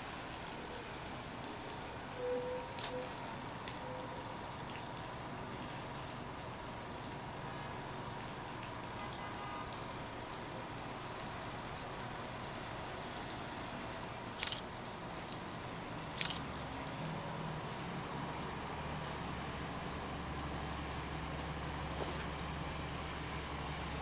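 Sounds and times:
sharp clicks: 14.4s - 14.6s, 16.2s - 16.4s.

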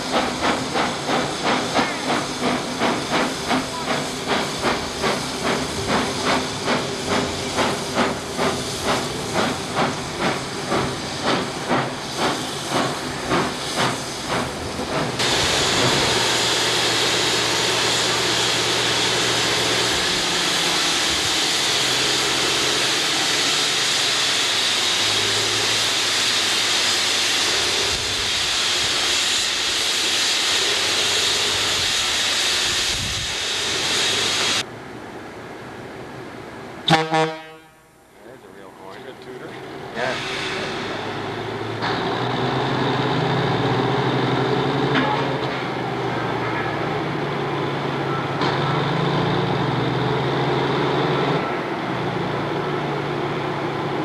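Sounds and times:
steam hissing: 0.0s - 34.7s, 38.3s - 46.0s
steam locomotive chuffing: 0.0s - 34.7s, 38.3s - 54.0s.

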